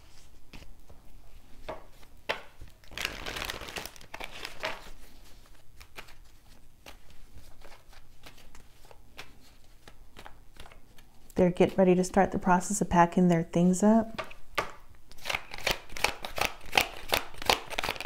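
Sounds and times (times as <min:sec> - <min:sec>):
cards shuffling: 0:01.6 - 0:11.8, 0:14.2 - 0:18.0
cards clicking and tapping: 0:14.2 - 0:18.0.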